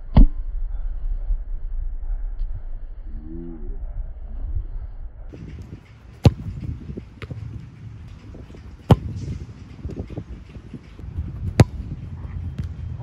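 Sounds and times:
low outdoor rumble: 0:00.0 - 0:13.0
ball kicked with a thump: 0:05.5 - 0:07.6, 0:08.3 - 0:10.2, 0:11.2 - 0:12.8.

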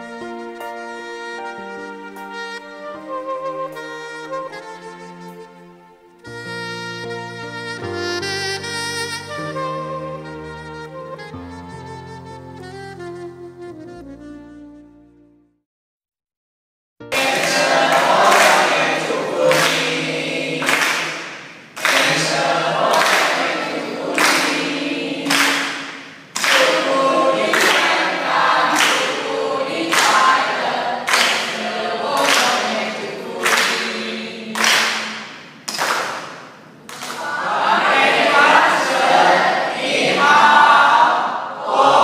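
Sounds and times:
group singing in unison: 0:17.1 - 0:35.3, 0:36.9 - 0:42.0.

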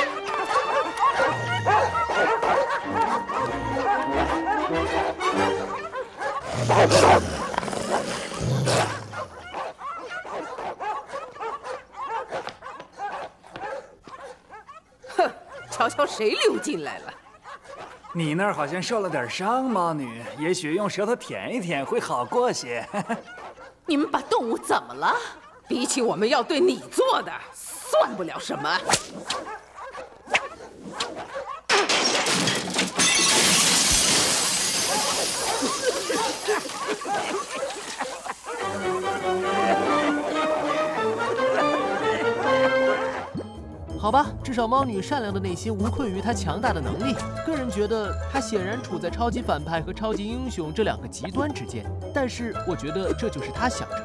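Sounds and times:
dogs barking and snarling: 0:00.0 - 0:21.3, 0:22.2 - 0:31.8, 0:34.0 - 0:43.4
whip cracks: 0:28.8 - 0:29.5
glass shattering: 0:31.7 - 0:38.3.

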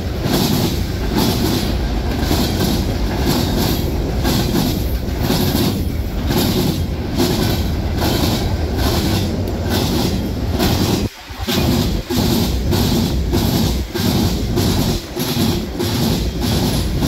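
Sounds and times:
wheels clicking over rail joints: 0:00.0 - 0:17.0.

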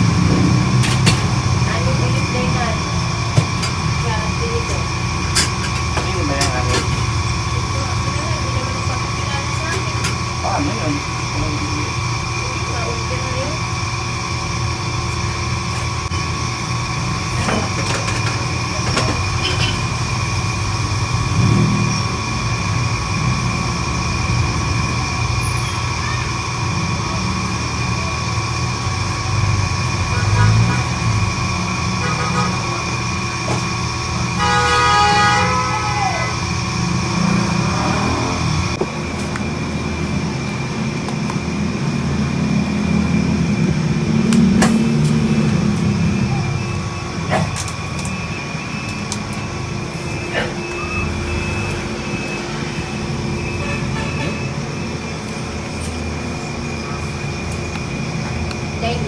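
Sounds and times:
horn-like toot: 0:32.0 - 0:32.8, 0:34.4 - 0:36.4, 0:53.6 - 0:54.5.

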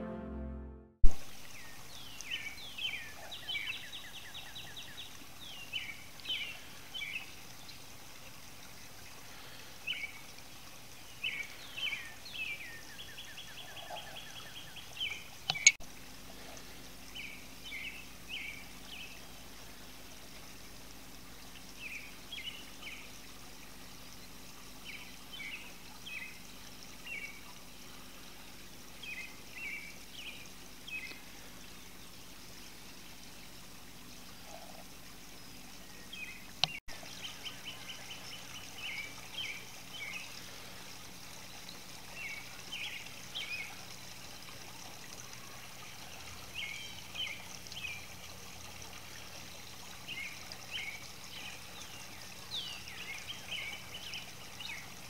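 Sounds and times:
fountain trickling: 0:01.1 - 0:55.0
small bird chirping: 0:13.5 - 0:15.8.

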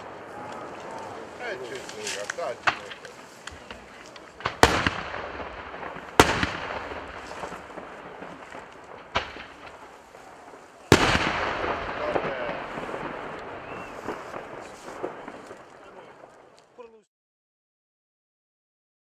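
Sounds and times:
fireworks bursting with bangs: 0:00.0 - 0:16.8
long rolling echo: 0:00.0 - 0:17.1.

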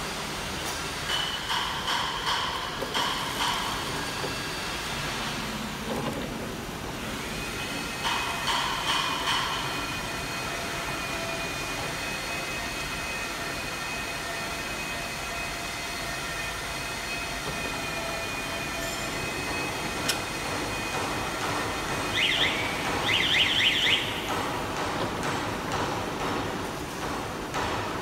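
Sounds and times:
packing machinery droning: 0:00.0 - 0:28.0.

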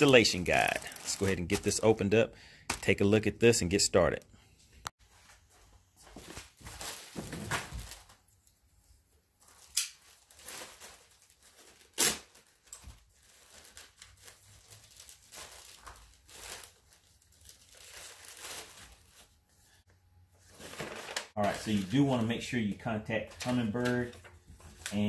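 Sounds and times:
plastic bag ripping: 0:00.0 - 0:01.9, 0:09.5 - 0:19.3
plastic bag crinkling: 0:00.0 - 0:02.0, 0:09.4 - 0:19.4.

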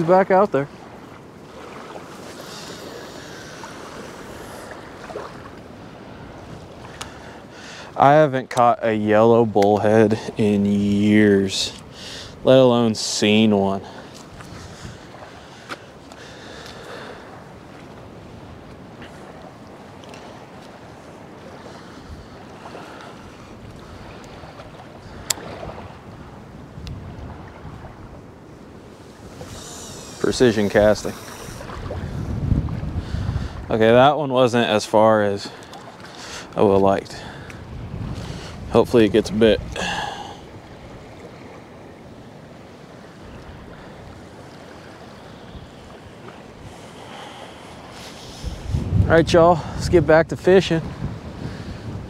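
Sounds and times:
small waves lapping: 0:00.0 - 0:52.0
wind on microphone: 0:14.0 - 0:15.7, 0:17.4 - 0:34.1, 0:37.2 - 0:41.6, 0:42.9 - 0:52.0
fishing rod cast click: 0:25.2 - 0:25.5.

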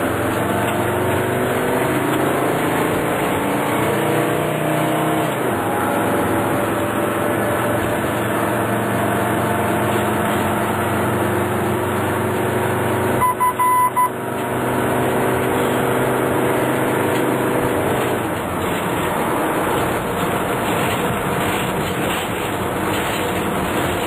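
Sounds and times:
vehicle engine and road noise: 0:00.0 - 0:24.0
short high beeps: 0:13.2 - 0:14.2.

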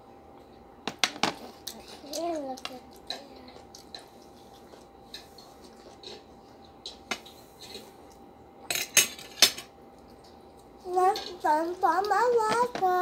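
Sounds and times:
cutlery clinking against plates: 0:08.6 - 0:09.7.

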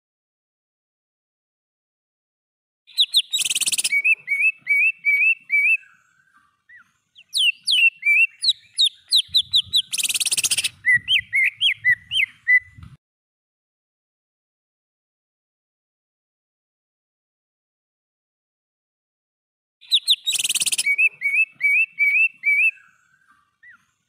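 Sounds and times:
bird singing whistled notes: 0:02.9 - 0:12.9, 0:19.8 - 0:24.0.

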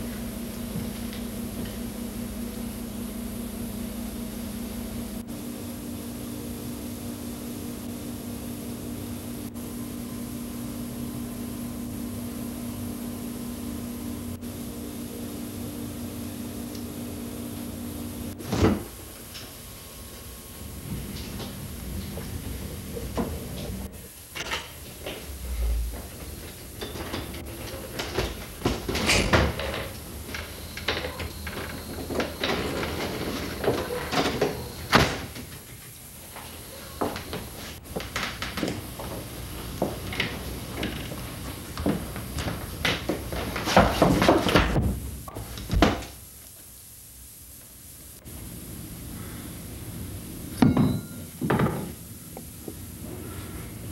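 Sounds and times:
constant low hum: 0:00.0 - 0:53.9
refrigerator door: 0:18.4 - 0:19.0, 0:31.0 - 0:35.4.

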